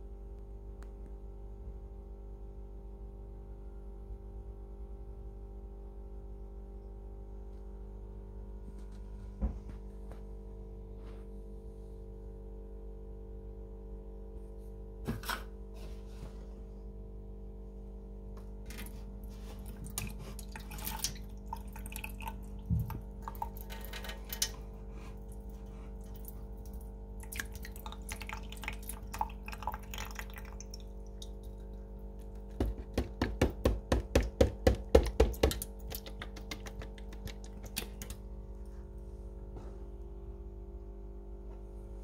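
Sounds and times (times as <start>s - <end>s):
steady low hum: 0.0s - 42.0s
small drips and clicks: 19.6s - 24.6s, 25.2s - 32.8s, 35.1s - 38.2s
milk glugging into a sink: 19.6s - 38.2s.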